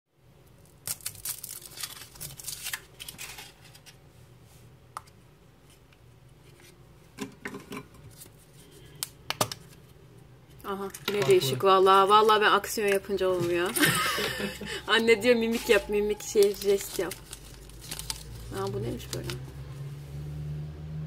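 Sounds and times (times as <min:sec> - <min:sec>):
chocolate shell cracking: 0:00.6 - 0:02.8
foil wrapper crinkling: 0:00.6 - 0:04.0, 0:15.4 - 0:19.4
plastic capsule snapping open: 0:09.0 - 0:09.7.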